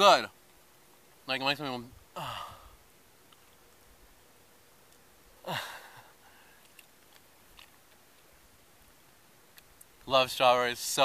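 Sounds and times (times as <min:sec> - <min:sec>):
man sighing: 0:02.1 - 0:02.8, 0:05.4 - 0:06.6.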